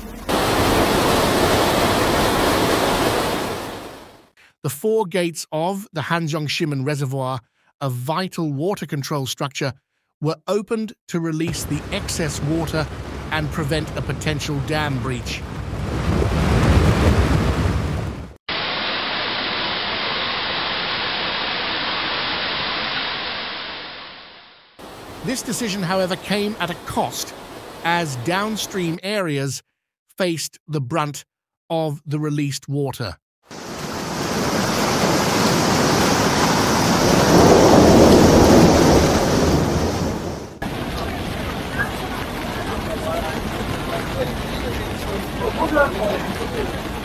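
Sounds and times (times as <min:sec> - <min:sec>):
water pouring from spillway: 0:00.3 - 0:04.0, 0:18.5 - 0:24.1, 0:33.5 - 0:47.0
floodwater rushing and churning: 0:00.3 - 0:04.3, 0:11.5 - 0:23.8, 0:24.8 - 0:29.0, 0:33.5 - 0:47.0.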